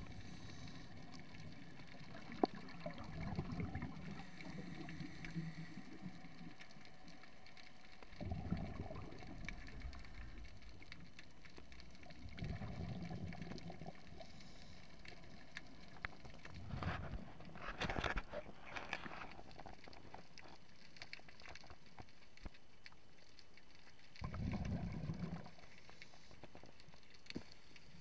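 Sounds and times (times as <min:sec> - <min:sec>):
diver breathing through regulator: 0:00.0 - 0:01.2
exhaled air bubbling: 0:00.0 - 0:20.6, 0:24.0 - 0:28.0.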